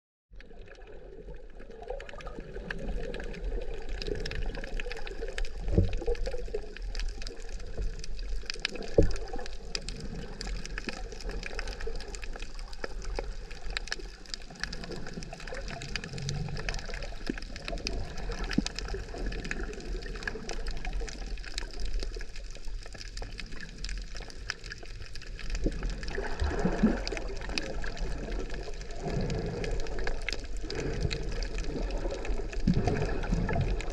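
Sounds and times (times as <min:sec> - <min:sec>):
muffled underwater water movement: 0:00.3 - 0:33.9
fine crackling and clicking: 0:00.4 - 0:33.9.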